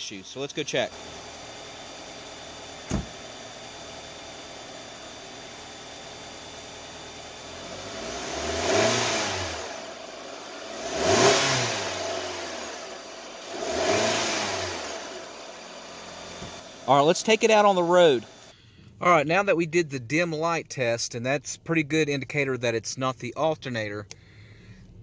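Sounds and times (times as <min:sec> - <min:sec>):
car engine idling and revving: 0:00.0 - 0:19.0, 0:24.0 - 0:25.0
car door shutting: 0:02.8 - 0:03.2.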